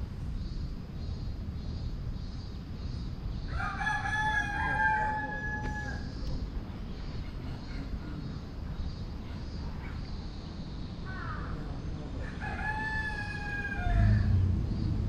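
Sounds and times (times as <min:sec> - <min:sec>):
rooster crowing: 0:03.5 - 0:06.2, 0:12.2 - 0:14.5.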